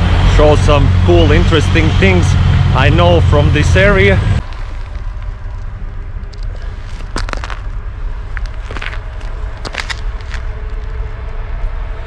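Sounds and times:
steady low rumble: 0.0 - 12.0
footsteps on wet gritty paving: 4.4 - 5.6, 6.3 - 11.0
short crunching crackles: 4.4 - 11.0.

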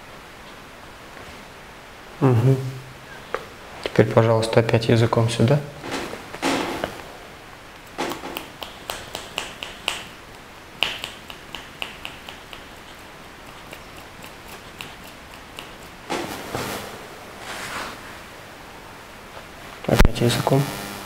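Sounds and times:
short rustle: 15.8 - 18.4.

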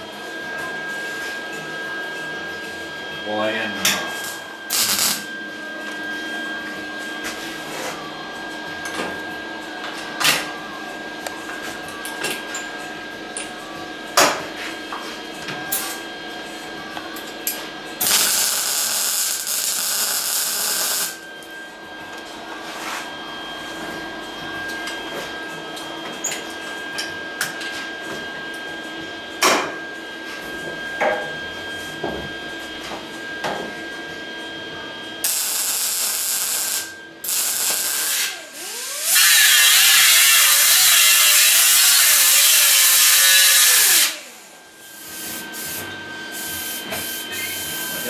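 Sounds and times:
mig welder welding: 3.8 - 5.4, 18.0 - 21.2, 35.2 - 48.0.

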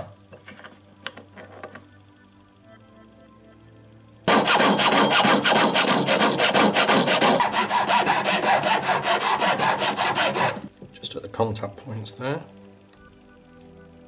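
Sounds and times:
hand file rasping on metal: 4.3 - 10.7
piercing saw cutting silver: 4.3 - 10.7.

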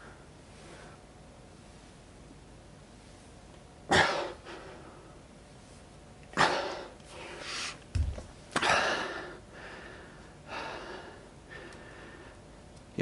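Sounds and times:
man breathing hard: 4.0 - 5.2, 8.6 - 12.6.

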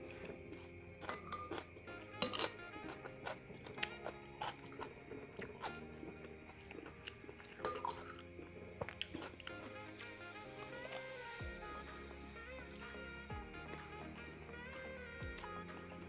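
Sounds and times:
chewing: 0.0 - 11.2
background music: 0.0 - 16.0
metal spoon scraping glass bowl: 1.0 - 3.1.

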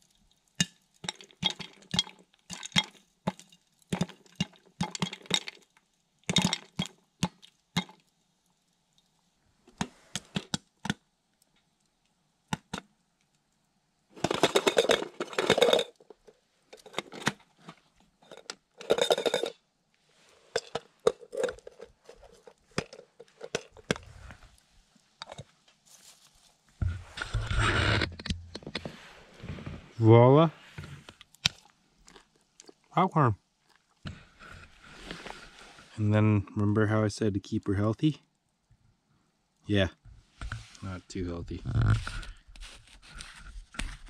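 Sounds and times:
popcorn popping in a pot: 0.5 - 8.0
pot shaken on stove rattling: 14.2 - 16.0, 18.8 - 19.5.

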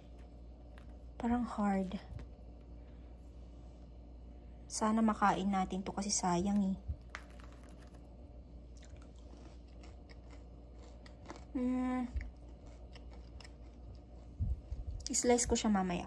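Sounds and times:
soft low thumps: 14.4 - 15.1.

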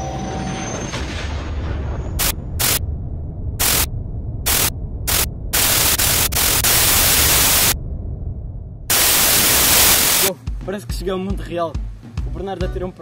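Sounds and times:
white noise static bursts: 2.2 - 2.8, 3.6 - 7.8, 8.9 - 10.4
steady low hum: 2.2 - 10.3.

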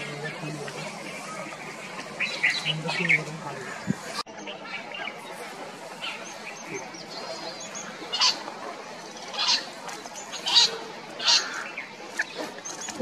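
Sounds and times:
partridge harsh calls: 6.0 - 8.5, 9.1 - 12.4.

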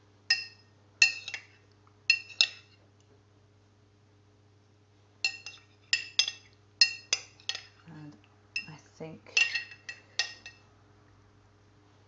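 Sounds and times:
utensil clinking against dish: 0.3 - 2.7, 5.2 - 7.9, 8.6 - 10.6.

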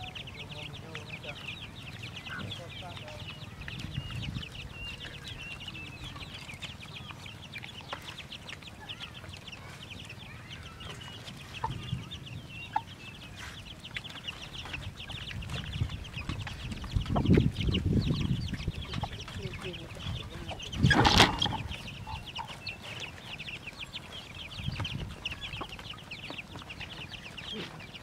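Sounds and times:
dogs eating from bowls: 0.0 - 21.0
chickens clucking: 0.0 - 28.0.

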